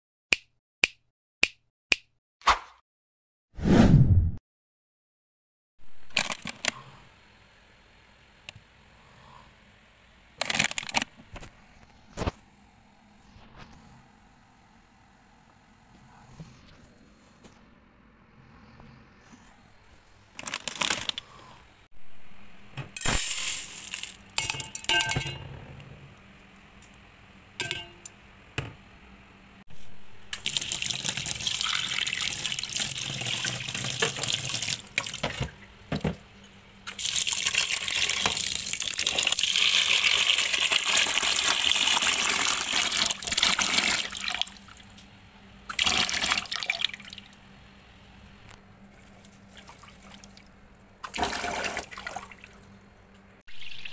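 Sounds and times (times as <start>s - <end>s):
rice being rinsed: 30.4s - 35.5s, 36.9s - 44.8s, 53.5s - 53.9s.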